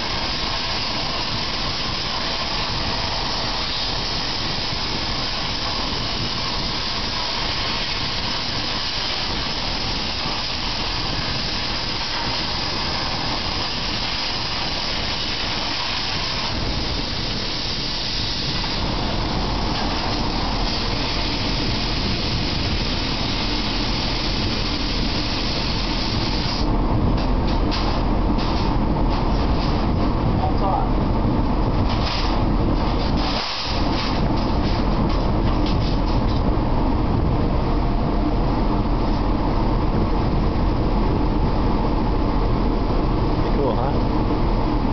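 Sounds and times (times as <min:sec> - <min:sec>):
plasma torch hissing: 0:00.0 - 0:30.0, 0:31.8 - 0:36.3.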